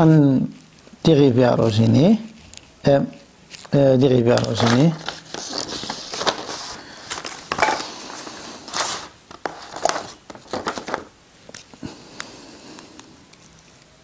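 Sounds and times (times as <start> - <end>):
paper rustling on desk: 3.5 - 11.8.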